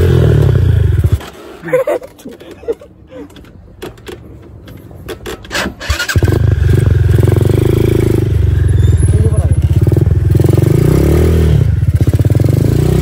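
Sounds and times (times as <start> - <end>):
atv engine starting and running: 0.0 - 1.6, 5.2 - 13.0.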